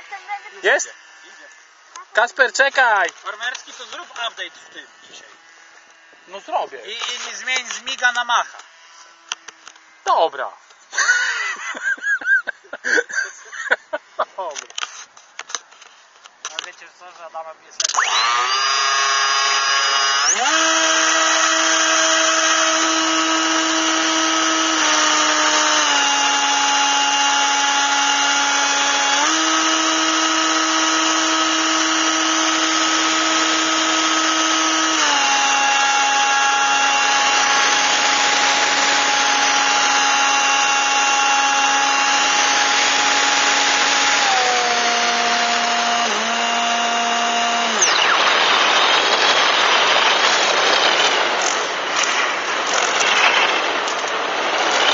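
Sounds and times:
model airplane propeller motor: 0:00.0 - 0:11.9, 0:17.8 - 0:54.9.

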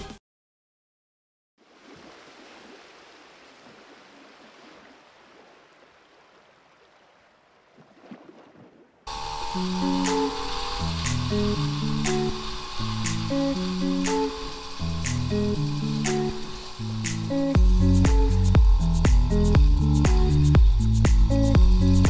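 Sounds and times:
electronic background music: 0:09.1 - 0:22.0
faint rushing noise: 0:09.1 - 0:22.0.

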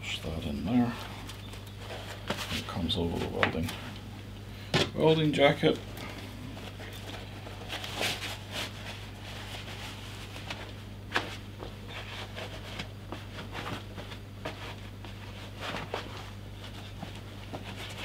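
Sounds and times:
steady low hum: 0:00.0 - 0:18.0
leather rustling and rubbing: 0:06.5 - 0:18.0.

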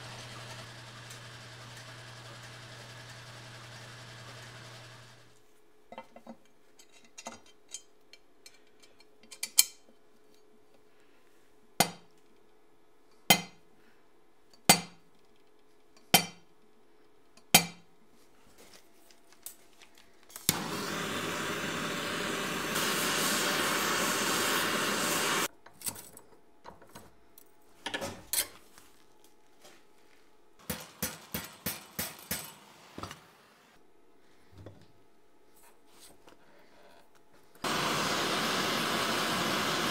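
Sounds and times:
harsh power tool noise: 0:00.0 - 0:05.3, 0:20.5 - 0:25.5, 0:37.6 - 0:39.9.

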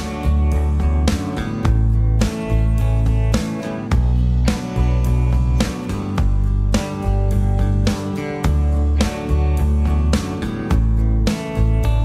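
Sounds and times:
music with steady beat and bass: 0:00.0 - 0:12.0.

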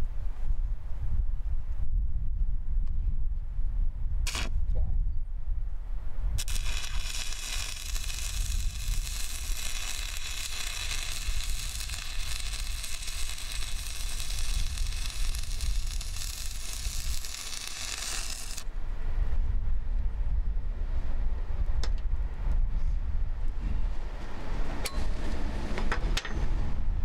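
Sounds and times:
low rumble: 0:00.0 - 0:25.8
welding arc crackling: 0:04.3 - 0:04.5, 0:06.4 - 0:18.7.

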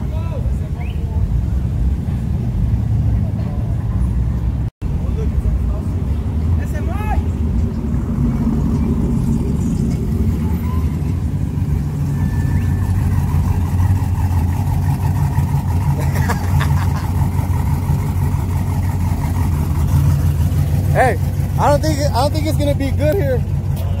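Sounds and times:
vehicle engine droning: 0:00.0 - 0:24.0.

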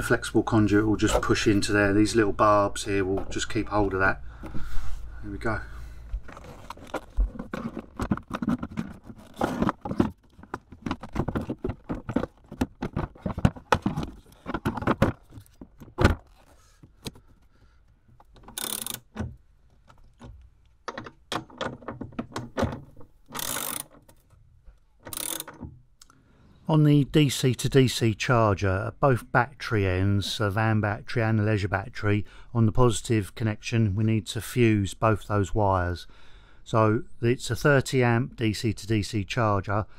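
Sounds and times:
socket ratchet ratcheting: 0:18.3 - 0:19.3, 0:23.3 - 0:24.1, 0:25.0 - 0:25.7.

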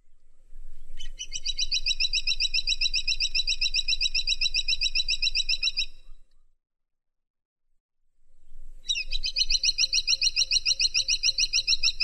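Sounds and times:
woodpecker calling: 0:01.0 - 0:06.1, 0:08.9 - 0:12.0.

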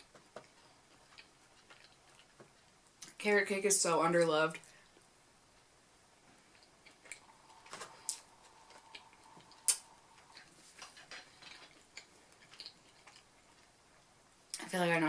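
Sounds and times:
person chewing: 0:00.0 - 0:03.1, 0:06.4 - 0:14.0
sharp clicks and ticks: 0:06.6 - 0:13.2.

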